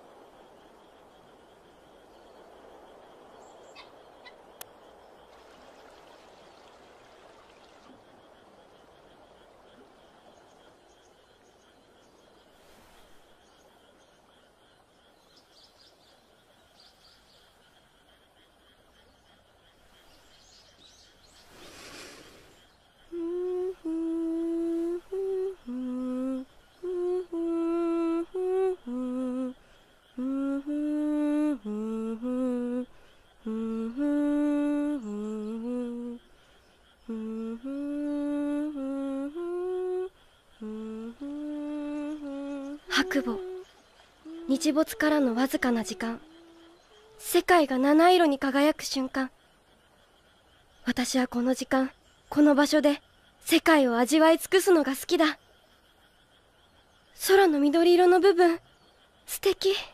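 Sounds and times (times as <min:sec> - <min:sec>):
faint outdoor ambience: 0:00.0 - 0:59.9
girl humming a slow melody: 0:23.1 - 0:36.4, 0:37.0 - 0:47.7.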